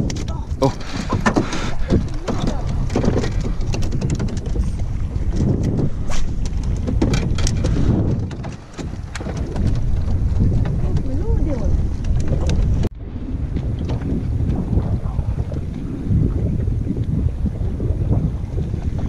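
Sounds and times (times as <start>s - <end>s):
moving water: 0.0s - 19.0s
wind buffeting microphone: 0.0s - 19.0s.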